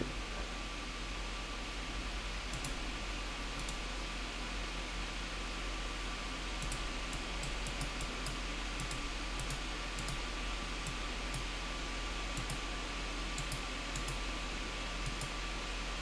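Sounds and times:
faint electrical hum: 0.0s - 16.0s
computer mouse clicking: 2.5s - 2.8s, 3.6s - 3.8s, 6.6s - 10.2s, 10.8s - 11.5s, 12.4s - 12.6s, 13.4s - 14.2s, 15.0s - 15.4s.

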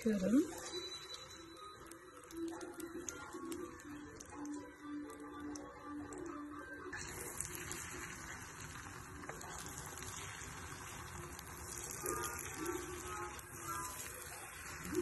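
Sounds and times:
egg sizzling in a frying pan: 0.0s - 15.0s.

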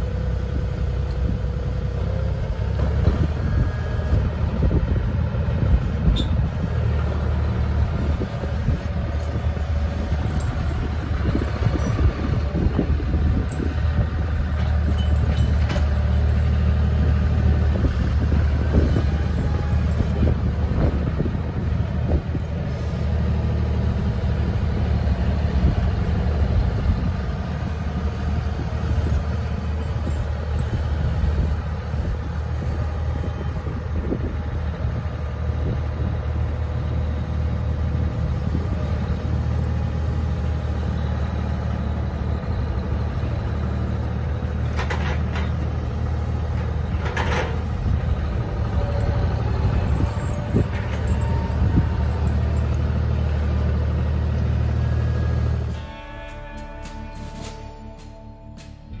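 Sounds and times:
tractor engine running: 0.0s - 59.0s.

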